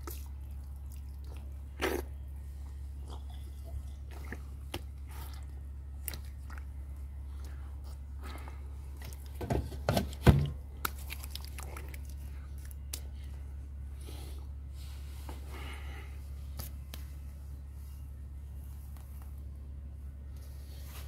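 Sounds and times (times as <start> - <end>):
water splashing and dripping: 10.8 - 13.0.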